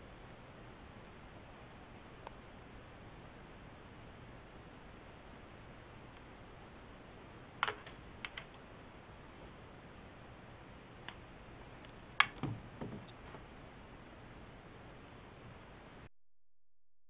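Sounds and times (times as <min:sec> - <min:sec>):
dull knocks: 0:12.4 - 0:13.5.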